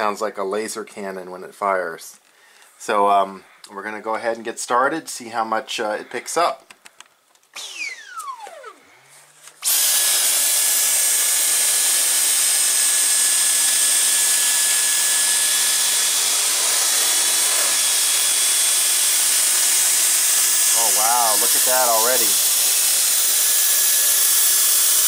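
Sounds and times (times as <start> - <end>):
vacuum cleaner running: 9.6 - 25.0.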